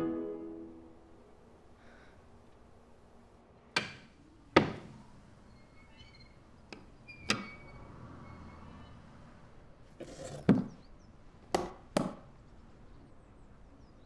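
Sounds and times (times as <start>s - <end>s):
leather case scraping: 10.0s - 10.5s.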